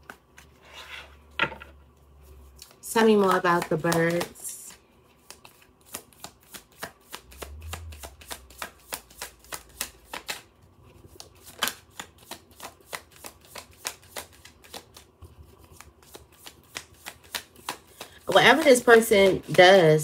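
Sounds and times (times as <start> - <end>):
cards shuffling with soft clicks: 0.0 - 0.6, 1.9 - 19.8.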